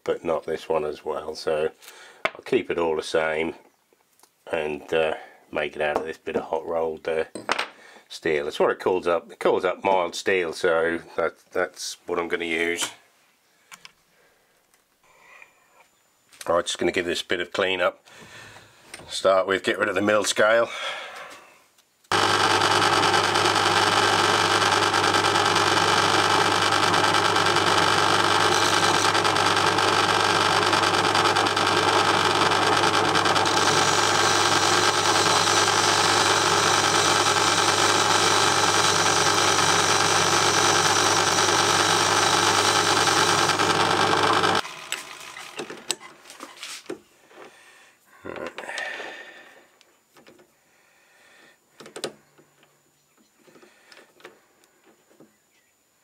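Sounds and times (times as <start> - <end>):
metal lathe cutting steel: 22.1 - 45.6.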